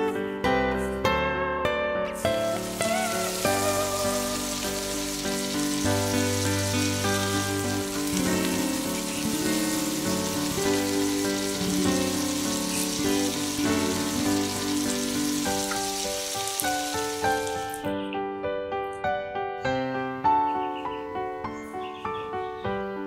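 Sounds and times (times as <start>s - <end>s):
background music: 0.0s - 23.0s
food deep-frying sizzle: 2.2s - 17.9s.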